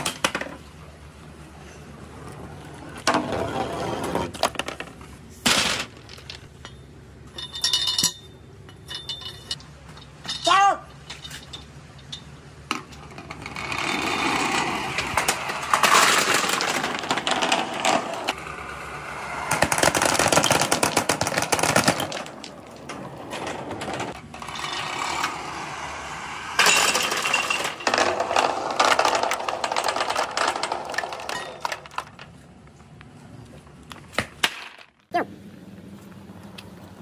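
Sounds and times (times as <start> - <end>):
balls rattling down plastic tubes: 11.6 - 32.4.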